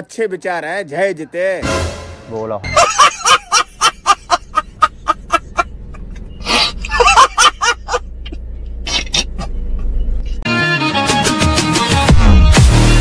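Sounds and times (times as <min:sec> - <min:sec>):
man laughing hard: 0:02.7 - 0:05.7, 0:06.8 - 0:08.0.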